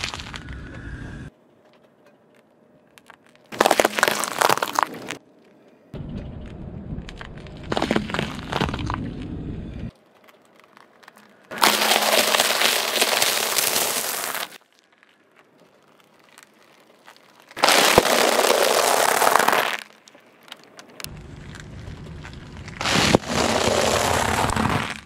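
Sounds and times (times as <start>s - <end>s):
tyre crushing puffed rice bars: 0.0s - 0.6s, 2.9s - 5.2s, 7.2s - 9.1s, 9.9s - 25.0s
low rumble: 6.0s - 9.9s, 21.1s - 22.8s
tyre crushing bag of dried noodles: 10.0s - 15.2s, 16.0s - 20.1s, 21.4s - 25.0s.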